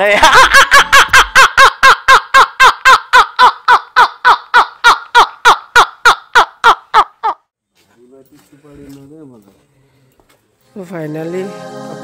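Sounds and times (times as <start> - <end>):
man laughing hard: 0.0 - 3.8.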